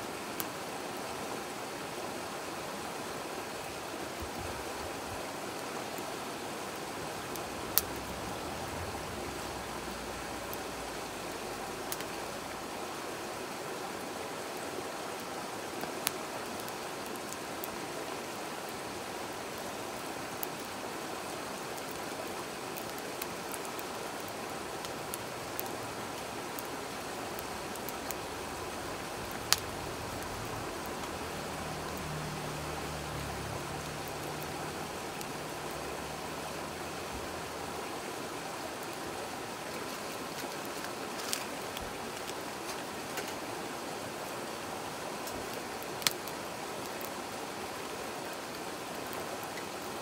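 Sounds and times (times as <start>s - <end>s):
stream rushing: 0.0s - 50.0s
wood fire crackling and popping: 6.7s - 12.3s, 15.2s - 17.8s, 20.0s - 37.2s, 38.7s - 43.5s, 45.1s - 47.2s.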